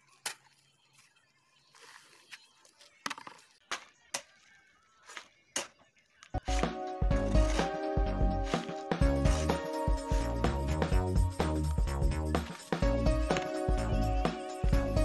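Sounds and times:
shovel scraping concrete: 6.4 - 10.6.

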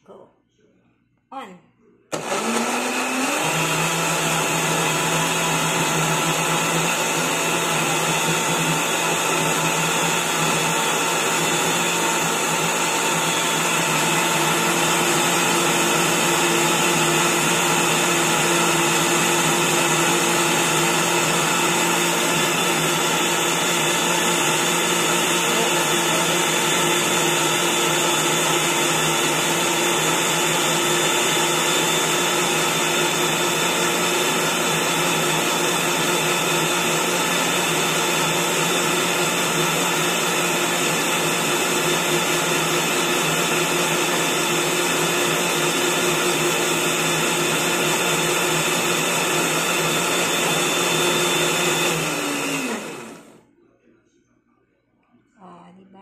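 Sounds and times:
blender motor running: 2.1 - 53.4.

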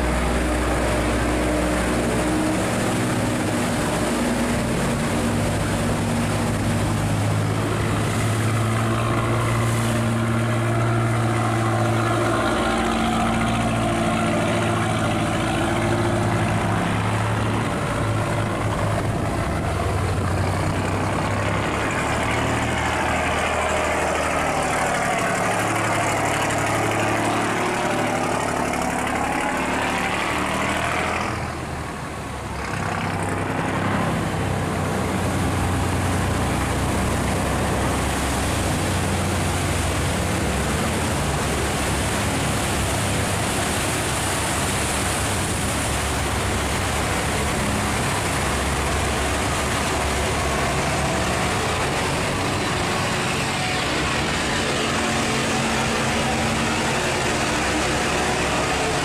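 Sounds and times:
boat engines running: 0.0 - 59.0
water churning along hulls: 0.0 - 59.0.

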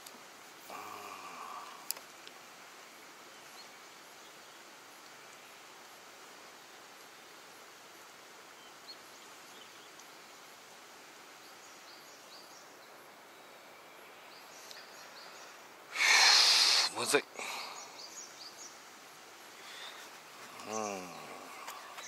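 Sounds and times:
loud rustling hiss: 0.0 - 22.0
faint bird chirps: 11.4 - 22.0.

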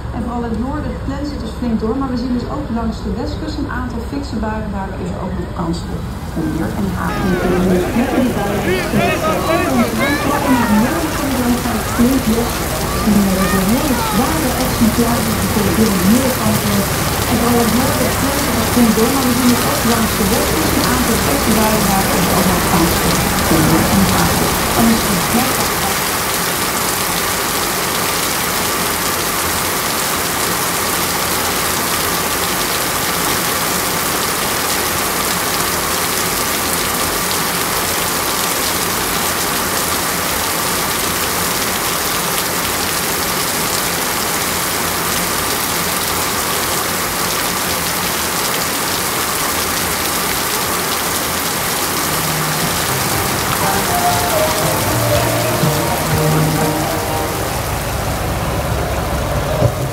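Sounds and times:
voices: 0.1 - 26.6, 50.4 - 59.9
water jets spraying and splashing: 6.1 - 59.9.

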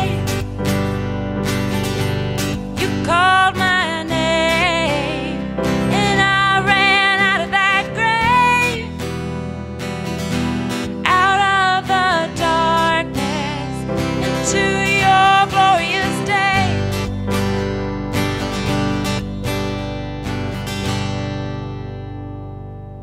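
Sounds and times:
women singing: 0.0 - 0.3, 2.8 - 8.9, 11.0 - 16.8
bass guitar: 0.0 - 23.0
piano: 0.0 - 23.0
strummed acoustic guitar: 0.0 - 23.0.

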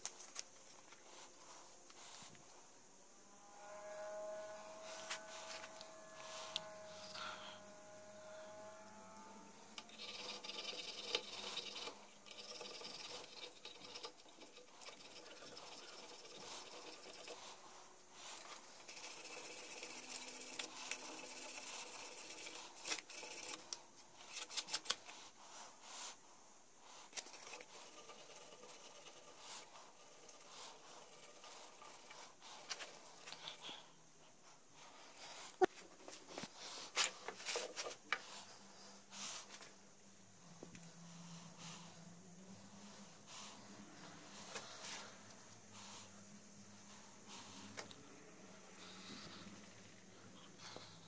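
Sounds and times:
blade shaving bone: 3.4 - 25.4
needle rubbed on abrasive sheet: 4.1 - 7.3, 14.7 - 33.6.

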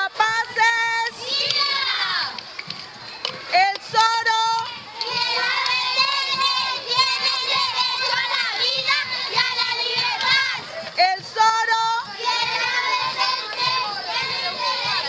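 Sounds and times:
children shouting and chanting: 0.0 - 15.0.

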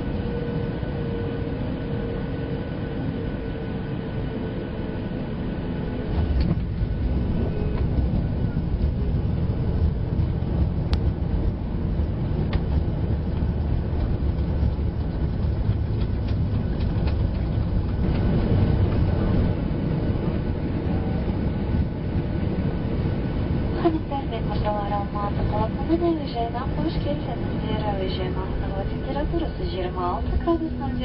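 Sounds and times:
low rumble of wheels and engines: 0.0 - 31.0
light clicks and rattles: 12.4 - 18.3.

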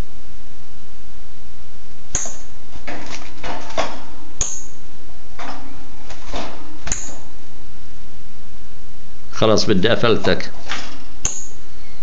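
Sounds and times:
bird fluttering against cage bars: 2.7 - 4.2, 5.4 - 7.3.

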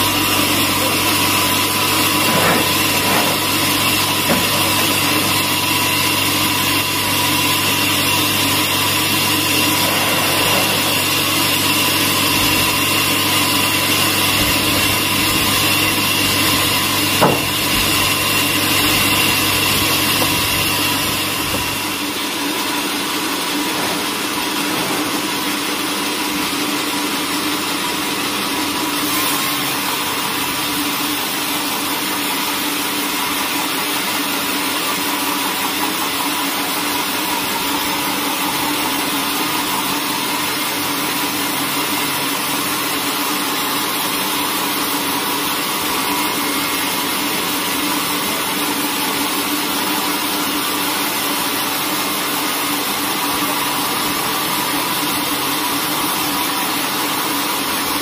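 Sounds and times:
band saw machine hum: 0.0 - 26.6.

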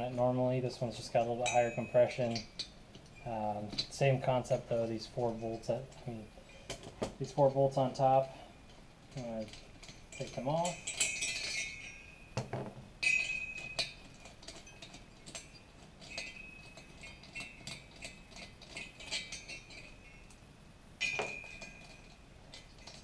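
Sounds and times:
wrench clinking on metal: 0.9 - 23.0
loose parts set down: 12.4 - 16.4, 21.0 - 23.0.

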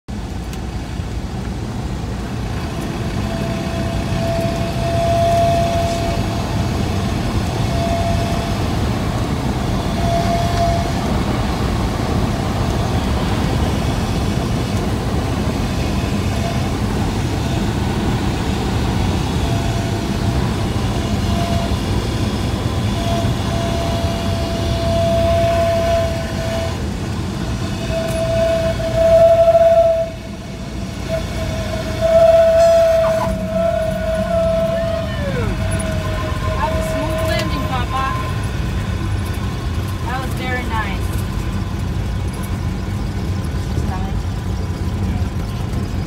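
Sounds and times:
aircraft engine and propeller drone: 0.1 - 28.6, 30.1 - 32.2, 33.0 - 46.0
howling wind whistle through vents: 0.1 - 46.0.

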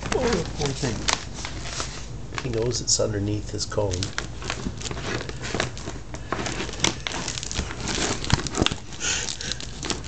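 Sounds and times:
plastic cone scraping on wooden floor: 4.5 - 8.8.

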